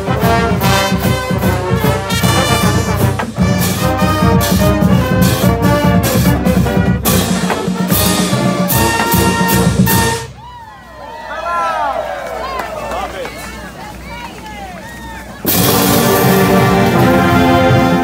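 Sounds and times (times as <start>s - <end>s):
marching band brass playing: 0.0s - 10.5s, 15.2s - 18.0s.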